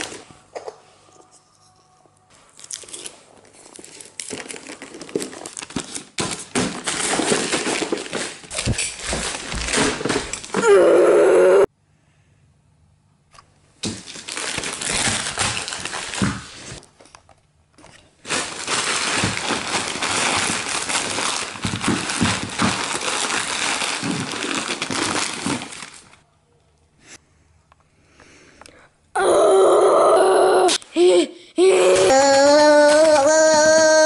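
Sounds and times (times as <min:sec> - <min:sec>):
wrapping paper crinkling: 0:02.5 - 0:10.6, 0:13.8 - 0:16.9, 0:18.2 - 0:26.2.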